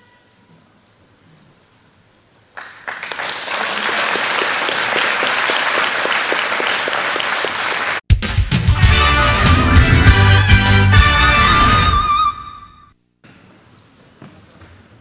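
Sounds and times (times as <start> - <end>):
audience applauding: 2.5 - 8.0.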